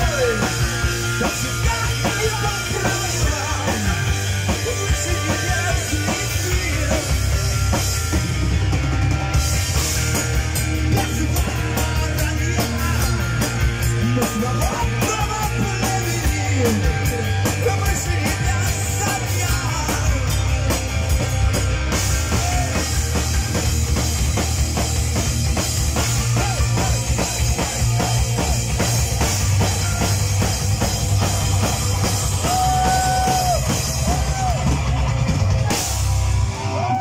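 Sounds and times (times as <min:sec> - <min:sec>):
singer's vocals: 0:00.0 - 0:07.5, 0:10.8 - 0:20.6
distorted electric guitars: 0:00.0 - 0:37.0
live heavy metal band: 0:00.0 - 0:37.0
pounding drum kit: 0:00.0 - 0:37.0.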